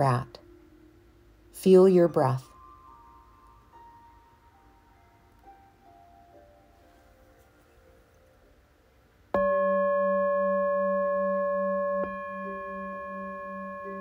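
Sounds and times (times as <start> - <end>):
singing bowl ringing: 9.3 - 14.0.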